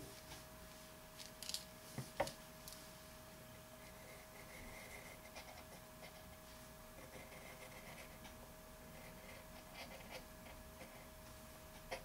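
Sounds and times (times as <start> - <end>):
faint steady hum: 0.0 - 12.0
pencil scratching on paper: 3.9 - 6.3, 7.0 - 8.3, 8.9 - 11.1.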